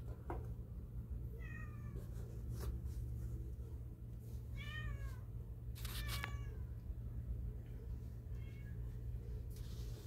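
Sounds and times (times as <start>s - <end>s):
steady low hum: 0.0s - 10.0s
cat meowing: 1.3s - 2.0s, 4.6s - 5.2s.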